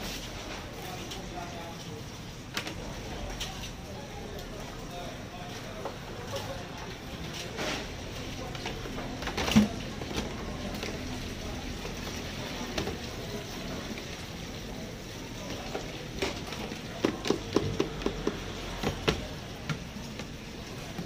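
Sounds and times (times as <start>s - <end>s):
plastic containers clattering in sink: 7.3s - 13.3s, 15.5s - 21.0s.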